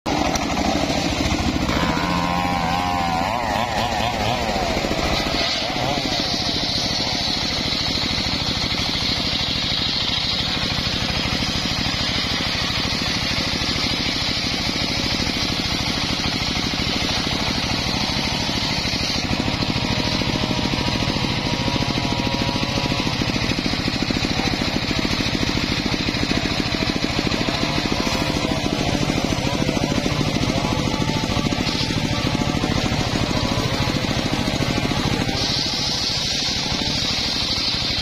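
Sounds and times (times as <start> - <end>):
circular saw blade whining through log: 0.1 - 38.0
sawmill engine running: 0.1 - 38.0.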